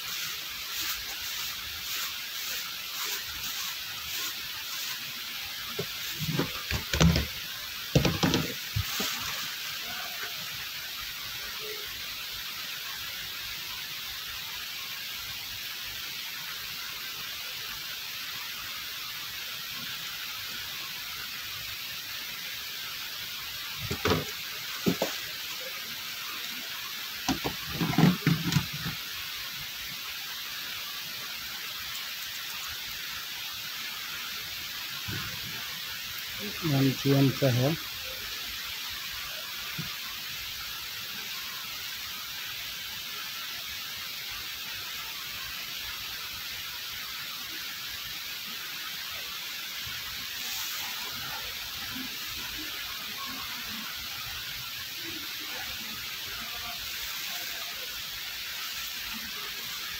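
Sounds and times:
steady hiss: 0:00.0 - 0:59.9
knocks and bumps: 0:08.0 - 0:08.9.

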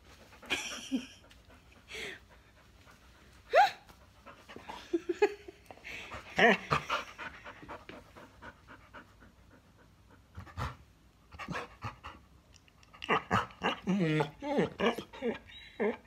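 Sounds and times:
dog panting: 0:00.0 - 0:05.1, 0:05.9 - 0:12.3.

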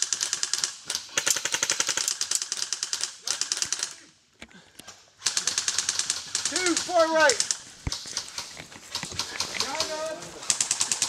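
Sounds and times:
airsoft rifle firing full auto: 0:09.2 - 0:11.0.

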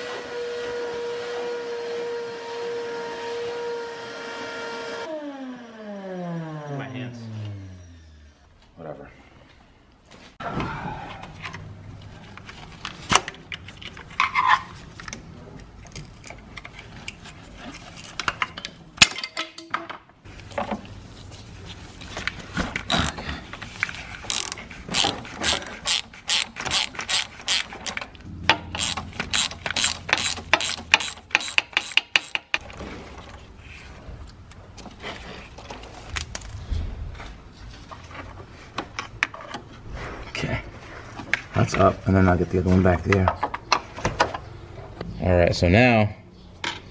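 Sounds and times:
ratchet wrench clicking: 0:24.3 - 0:28.0, 0:28.7 - 0:32.6.

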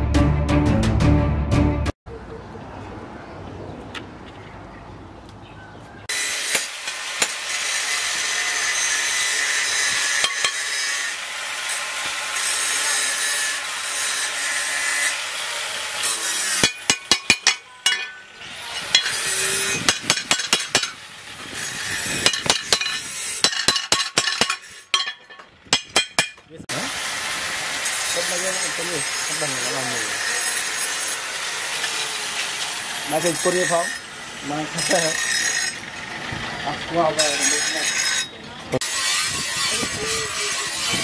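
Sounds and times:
harsh high-pitched rasping: 0:06.1 - 0:23.8, 0:25.9 - 0:36.0, 0:36.9 - 0:41.0
hammer striking steel on anvil: 0:06.4 - 0:07.5, 0:10.1 - 0:11.0, 0:16.5 - 0:21.0, 0:22.2 - 0:26.5.

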